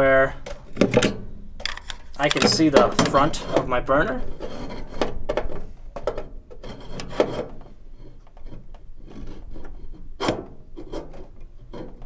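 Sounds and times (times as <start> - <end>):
mirror scraping sheet metal: 1.6 - 5.2, 6.6 - 12.0.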